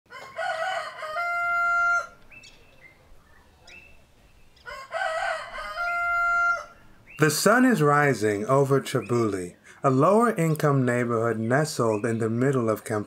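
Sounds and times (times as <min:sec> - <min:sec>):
rooster crowing: 0:00.1 - 0:02.4, 0:04.6 - 0:06.9.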